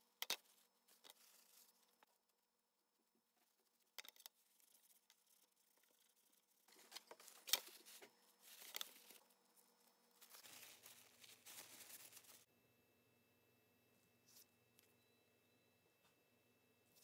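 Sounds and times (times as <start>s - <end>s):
paper towel rustling and crinkling: 5.8s - 12.5s.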